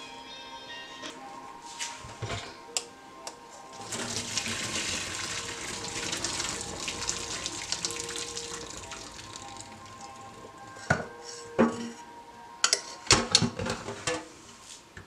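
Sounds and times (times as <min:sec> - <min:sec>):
water pouring into metal sink: 0:03.8 - 0:10.4.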